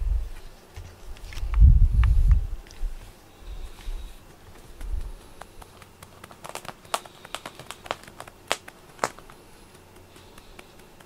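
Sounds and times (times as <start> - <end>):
crackling clicks from stroked fur: 4.3 - 11.0.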